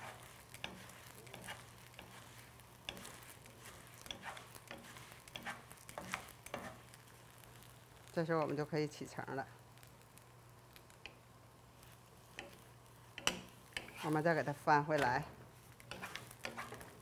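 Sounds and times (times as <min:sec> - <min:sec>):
wooden utensils scraping frying pan: 0:00.0 - 0:07.0, 0:11.8 - 0:17.0
light hiss: 0:00.0 - 0:17.0.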